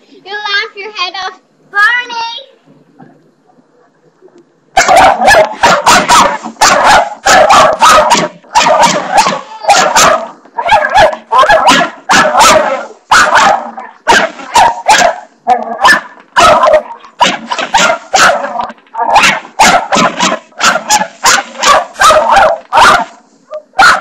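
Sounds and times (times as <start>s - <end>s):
dog barking rapidly: 4.8s - 24.0s.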